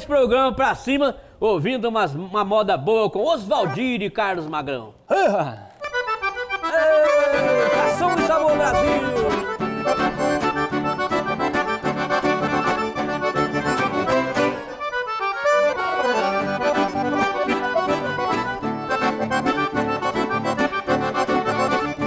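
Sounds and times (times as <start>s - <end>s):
accordion playing: 5.8s - 22.0s
rhythmic accompaniment: 5.8s - 22.0s.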